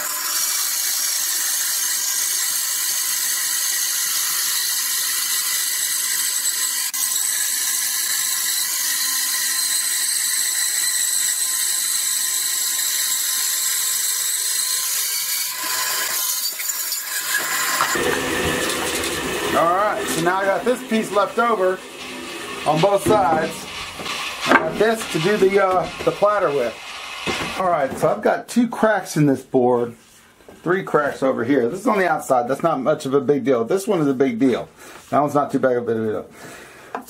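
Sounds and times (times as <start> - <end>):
bandsaw cutting wood: 0.0 - 28.3.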